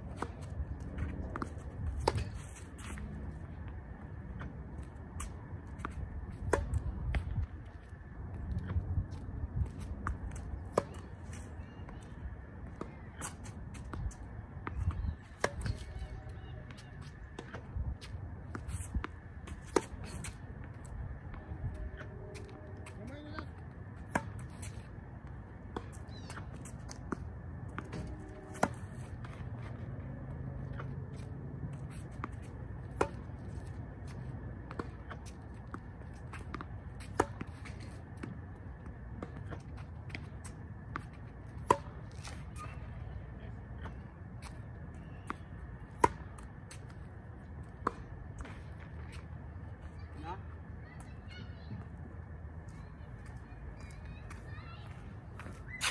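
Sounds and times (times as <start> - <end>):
tennis balls struck and bouncing: 0.0 - 43.0, 43.6 - 49.6
wind rumble on microphone: 5.4 - 10.7, 13.8 - 22.0.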